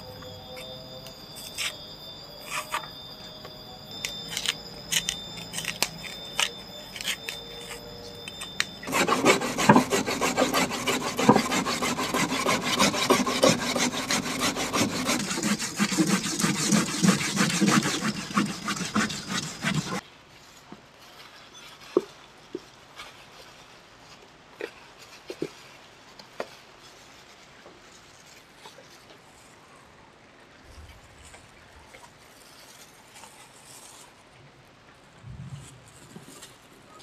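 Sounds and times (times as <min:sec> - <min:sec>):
grating on a metal grater: 0:08.9 - 0:20.0.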